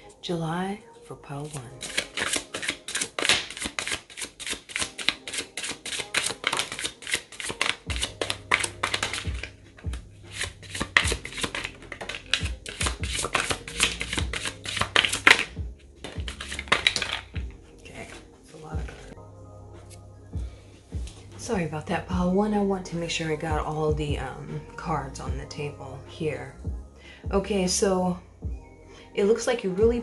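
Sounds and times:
soft background music: 0:00.0 - 0:30.0
cards shuffling and slapping: 0:01.5 - 0:17.4.

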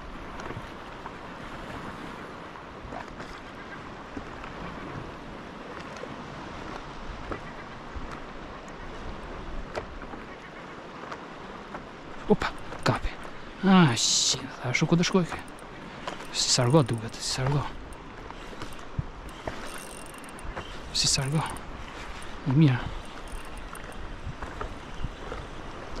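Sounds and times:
faint clicks: 0:12.3 - 0:13.3, 0:15.0 - 0:24.7.

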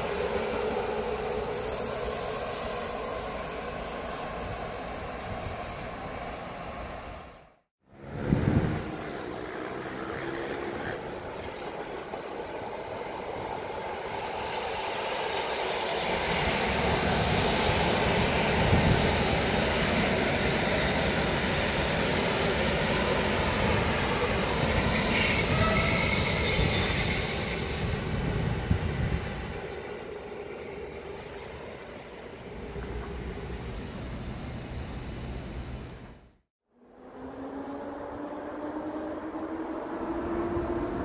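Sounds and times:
electric train running past: 0:08.0 - 0:36.2, 0:36.8 - 0:41.0
high-pitched wheel squeal: 0:23.8 - 0:28.8, 0:34.0 - 0:36.4.

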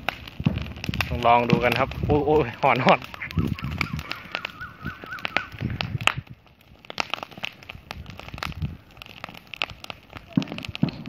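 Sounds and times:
burning straw crackling: 0:00.0 - 0:11.0
sharp fire pops: 0:00.0 - 0:11.0
wavering high tone: 0:02.3 - 0:05.7.

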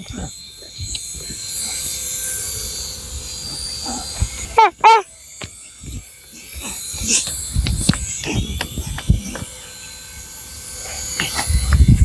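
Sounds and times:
young child squealing: 0:04.6 - 0:05.1.

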